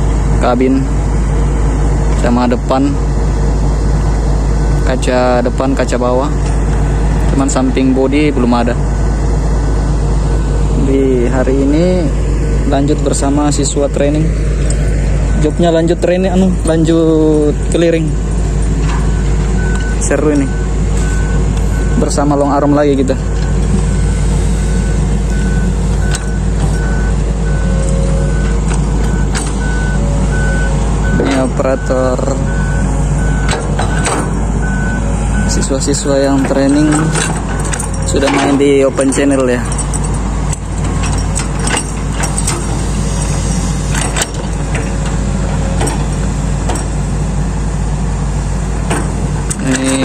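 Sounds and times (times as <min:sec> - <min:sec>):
diesel excavator engine running: 0:00.0 - 0:50.0
travel alarm beeping: 0:19.0 - 0:22.6, 0:23.3 - 0:38.5
short metallic clanks: 0:33.4 - 0:34.5, 0:36.0 - 0:47.1, 0:48.9 - 0:50.0.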